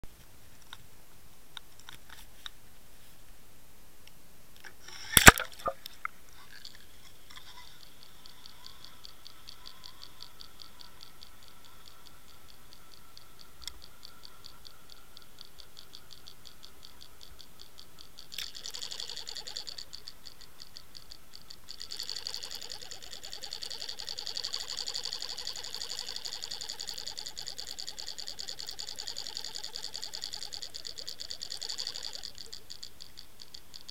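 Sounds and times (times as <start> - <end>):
fast ticking of lure underwater: 4.8 - 33.9
splash into water: 5.1 - 5.8.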